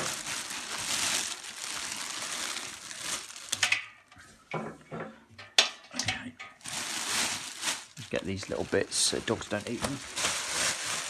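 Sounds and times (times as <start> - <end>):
plastic wrapping crinkling: 0.0 - 4.2, 6.4 - 11.0.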